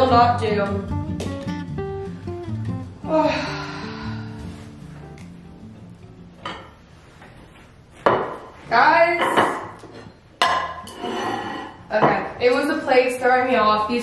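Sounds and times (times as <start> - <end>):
ceramic plates clinking: 10.4 - 12.3.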